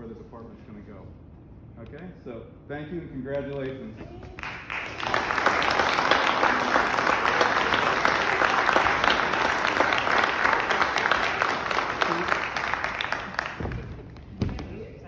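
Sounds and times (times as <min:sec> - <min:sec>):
audience applauding: 0:04.4 - 0:14.2.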